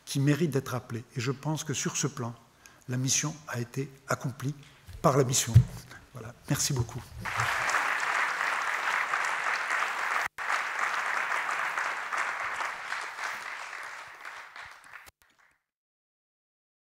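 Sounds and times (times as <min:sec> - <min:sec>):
audience applauding: 0:07.2 - 0:15.6.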